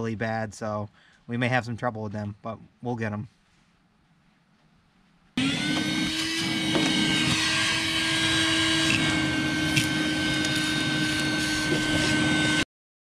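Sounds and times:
shop vacuum motor whine: 0:05.4 - 0:12.7.

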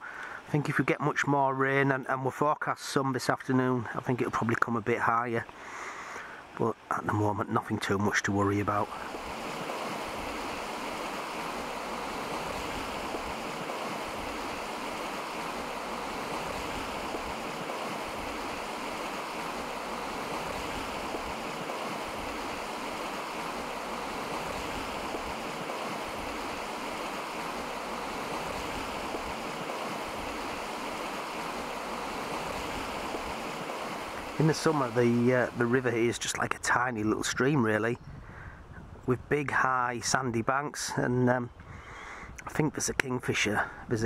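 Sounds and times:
flooded river rushing: 0:05.3 - 0:36.4.

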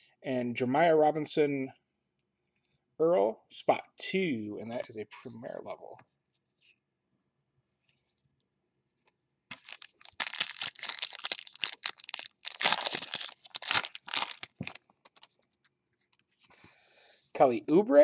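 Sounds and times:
foil wrapper crinkling and tearing: 0:09.5 - 0:15.5.

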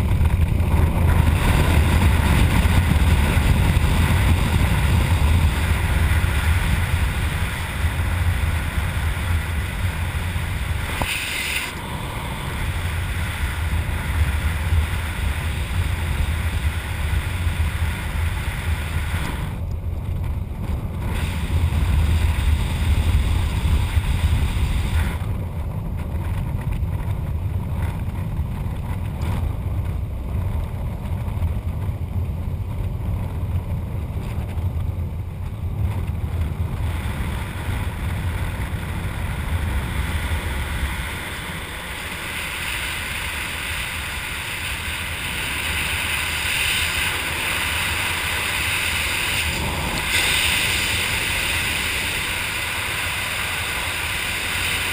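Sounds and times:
wind buffeting microphone: 0:00.0 - 0:11.1.

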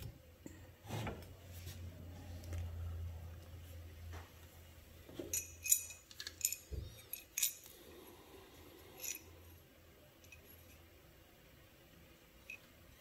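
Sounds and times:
metal parts clinking on wooden bench: 0:05.2 - 0:07.7, 0:09.0 - 0:09.4.

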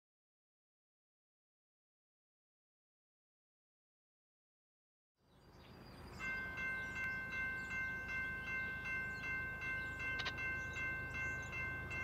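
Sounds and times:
crossing bell ringing: 0:06.0 - 0:12.0.

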